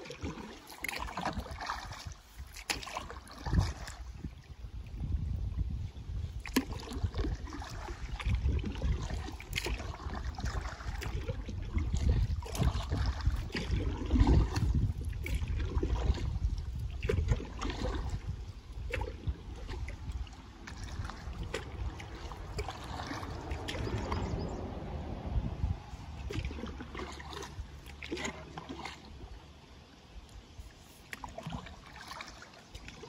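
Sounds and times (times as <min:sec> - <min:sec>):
drips and small splashes: 0:00.0 - 0:25.2, 0:25.9 - 0:33.0
water lapping against hull: 0:00.0 - 0:33.0
low rumble: 0:18.0 - 0:28.1.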